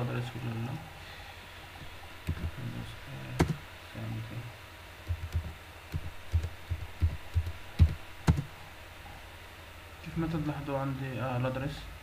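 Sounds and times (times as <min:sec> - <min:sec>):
keyboard keystrokes thumping: 0:05.1 - 0:08.5.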